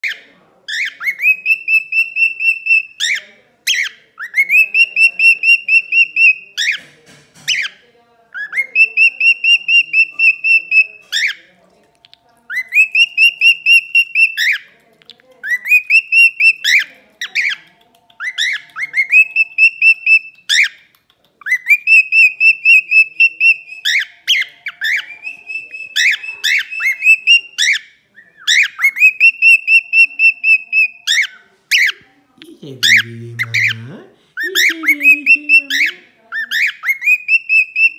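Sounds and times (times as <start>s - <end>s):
cockatiel whistling song: 0.0s - 6.8s, 8.4s - 11.4s, 12.5s - 14.6s, 15.4s - 20.8s, 21.4s - 32.0s, 34.4s - 37.9s
cockatiel chirps: 12.0s - 14.7s, 15.4s - 32.0s, 34.4s - 37.9s.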